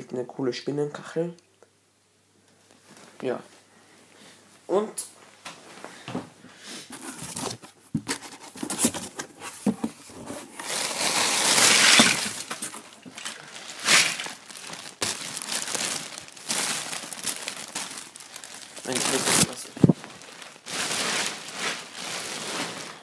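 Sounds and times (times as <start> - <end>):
packaging crinkling: 6.9 - 23.0.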